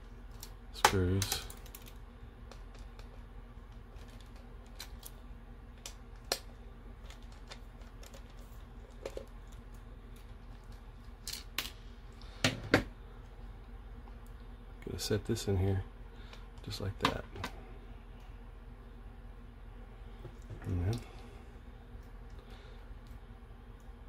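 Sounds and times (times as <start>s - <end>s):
plastic being handled: 0.2s - 11.6s.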